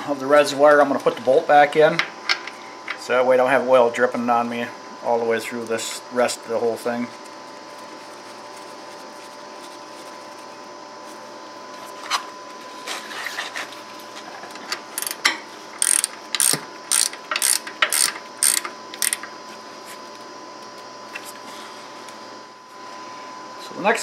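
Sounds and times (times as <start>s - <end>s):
ratchet wrench clicking: 15.0s - 15.2s, 15.8s - 19.3s.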